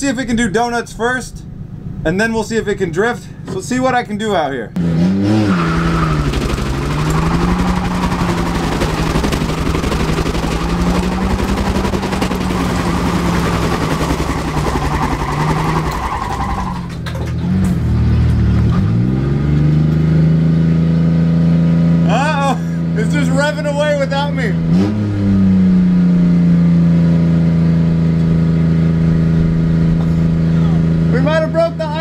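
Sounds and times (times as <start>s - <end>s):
engine revving high: 4.8s - 22.2s, 24.6s - 31.3s
tyres spinning and squealing: 5.2s - 18.3s.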